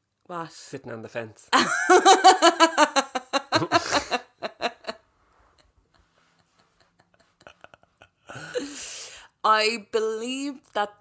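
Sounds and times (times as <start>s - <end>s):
laughter: 1.6s - 5.0s, 5.9s - 8.6s
breathy vocal sound: 8.3s - 9.3s.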